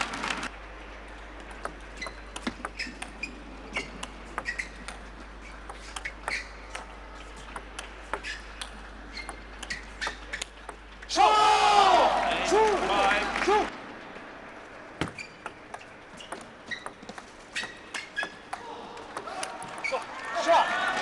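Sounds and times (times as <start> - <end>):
faint hall background: 0.0 - 21.0
table tennis ball clicking: 1.4 - 10.8.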